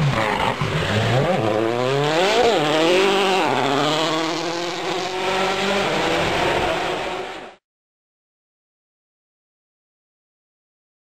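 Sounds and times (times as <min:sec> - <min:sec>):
rally car engine at full throttle: 0:00.0 - 0:07.6.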